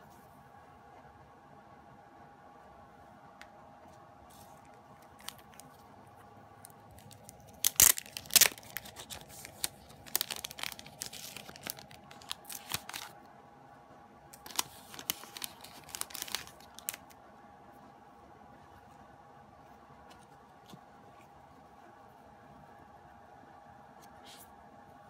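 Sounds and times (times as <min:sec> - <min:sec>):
thin plastic crinkling: 0:04.3 - 0:13.2, 0:14.3 - 0:17.2
plastic sleeve tearing: 0:06.9 - 0:13.2, 0:14.4 - 0:17.1.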